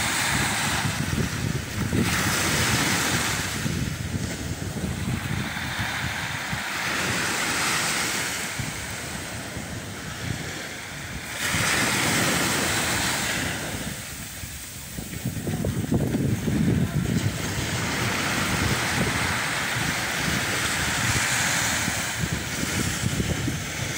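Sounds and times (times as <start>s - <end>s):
small waves on beach: 0.0s - 23.9s
wind buffeting microphone: 0.0s - 23.9s.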